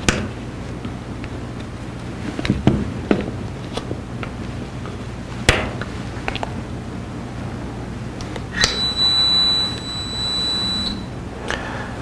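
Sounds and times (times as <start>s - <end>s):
loud click: 8.6s - 8.9s
high-pitched electronic beep: 8.6s - 11.1s.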